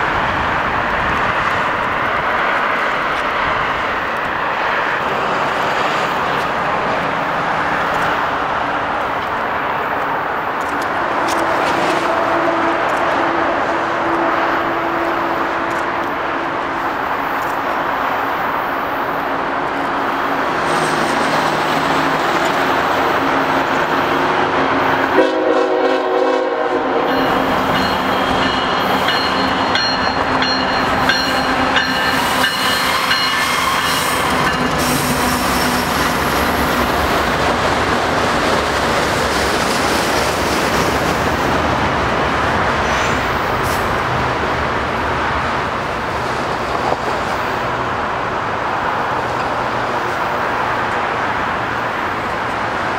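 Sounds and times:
diesel locomotive engines droning: 0.0 - 52.9
train horn blast: 25.1 - 29.0
high wheel squeal: 27.1 - 36.8.

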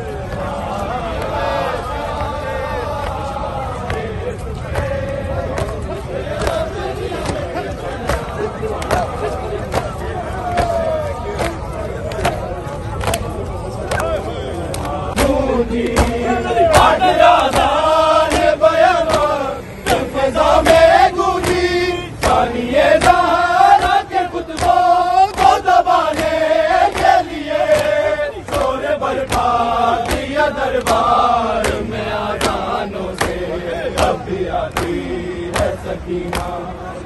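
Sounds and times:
crowd chanting in phrases: 0.0 - 37.0
hands slapping chests: 8.0 - 10.8, 11.4 - 13.3, 22.2 - 33.4, 34.0 - 36.6.

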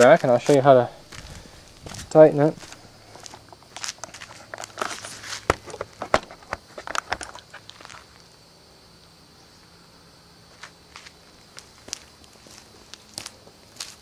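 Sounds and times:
camera handling rustling: 0.0 - 8.0
footsteps: 0.0 - 8.2, 10.5 - 14.0.

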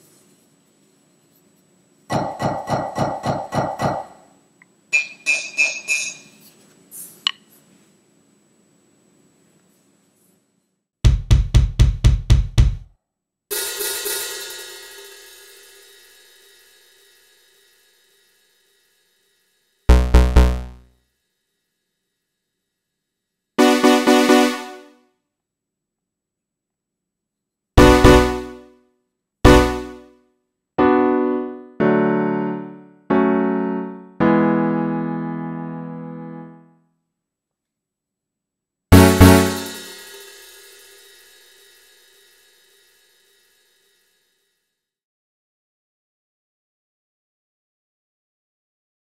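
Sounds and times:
deep drum hits: 11.1 - 12.8, 38.9 - 39.6
cymbal crash ringing: 13.5 - 19.4, 38.9 - 44.3
piano-like keyboard chords: 19.9 - 20.8, 23.6 - 24.9, 27.8 - 28.6, 29.5 - 30.0, 30.8 - 36.7, 38.9 - 39.8.

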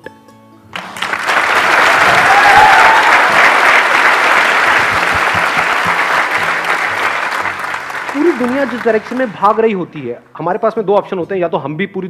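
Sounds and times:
audience applauding: 0.8 - 9.8.

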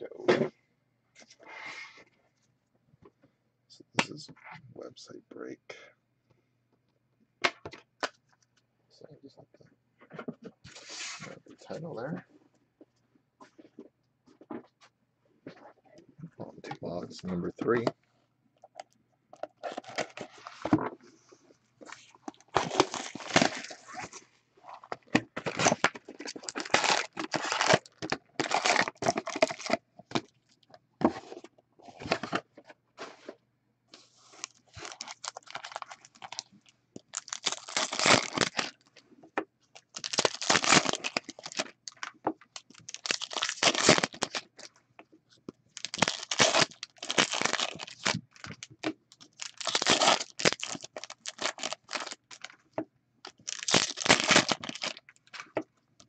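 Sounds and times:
wrapper ripping and crinkling: 19.6 - 20.6, 22.4 - 29.8, 34.3 - 38.8, 39.8 - 44.7, 45.7 - 52.6, 53.3 - 55.4.

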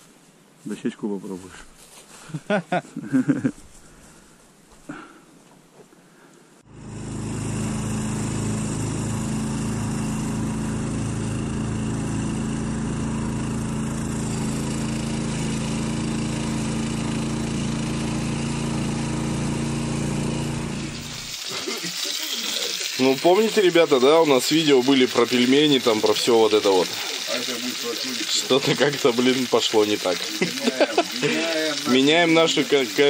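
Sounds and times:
small engine running: 6.7 - 33.0.

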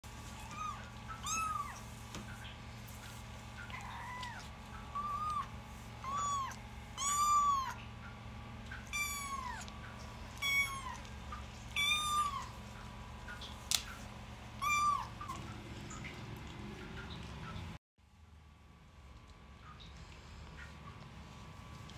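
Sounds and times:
cat meowing: 0.4 - 1.8, 3.6 - 7.8, 8.8 - 9.7, 10.4 - 11.1, 11.7 - 12.6, 14.6 - 15.4.

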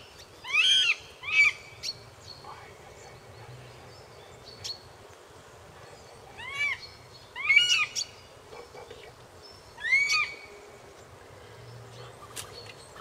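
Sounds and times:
bird of prey calls: 0.4 - 2.0, 6.4 - 8.2, 9.8 - 10.5.

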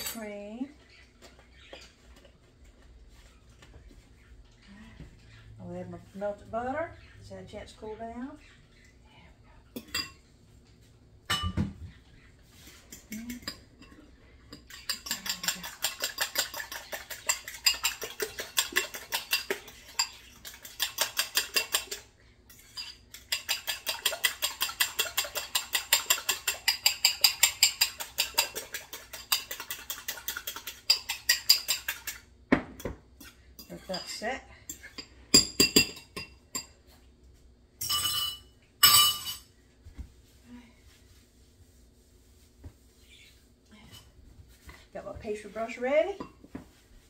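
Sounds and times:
fork clinking against bowl: 12.9 - 32.2.

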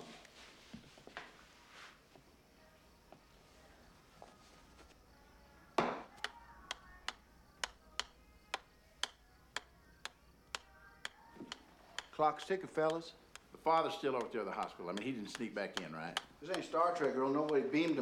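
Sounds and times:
golf ball bouncing on club face: 5.8 - 13.5.

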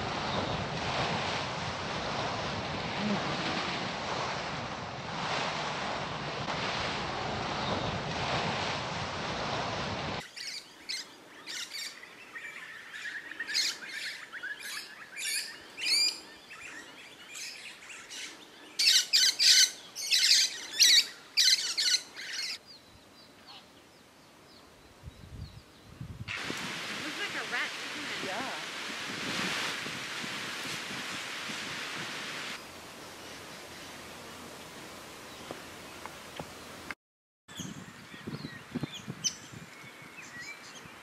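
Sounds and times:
surf washing over rocks: 0.0 - 10.2, 26.3 - 36.9
wind on microphone: 0.0 - 10.3, 24.8 - 36.9, 37.5 - 41.0
lorikeets screeching: 10.3 - 16.2, 17.4 - 22.6.

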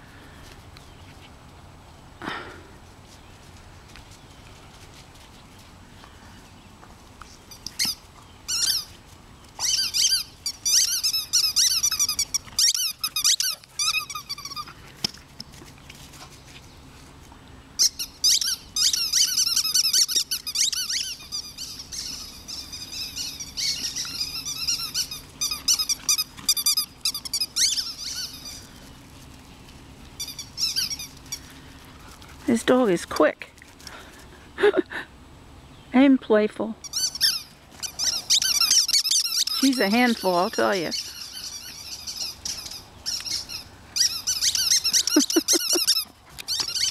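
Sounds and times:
rubber squeaky toy squeaking: 7.5 - 8.9, 9.6 - 14.7, 17.8 - 28.6, 30.2 - 31.2, 36.8 - 46.9.

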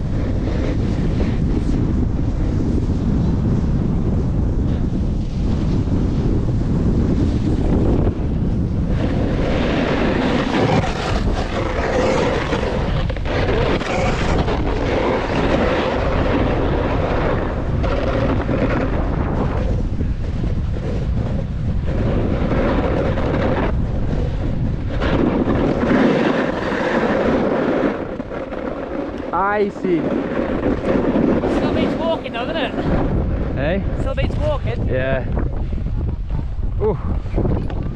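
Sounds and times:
wind buffeting microphone: 0.0 - 37.9
skis scraping on packed snow: 0.2 - 3.3, 8.8 - 33.0.

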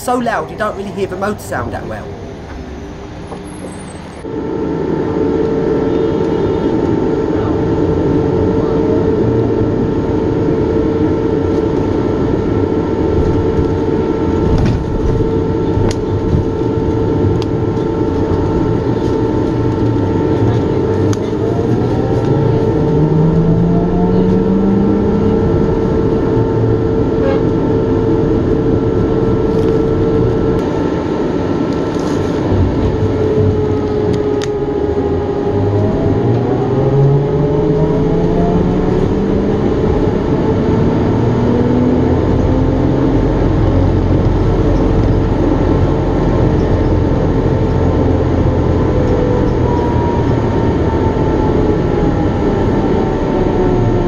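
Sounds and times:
ventilation fan humming: 0.0 - 3.2, 4.2 - 54.0
road noise: 0.0 - 54.0.

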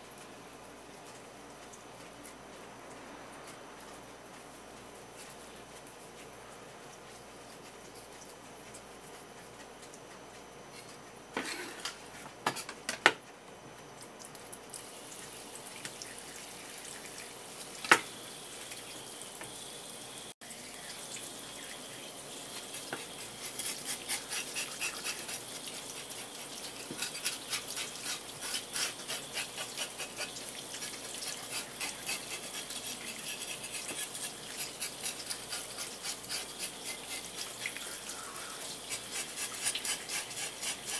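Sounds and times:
tap water running: 14.2 - 40.9
knife scraping fish scales: 22.5 - 40.9.

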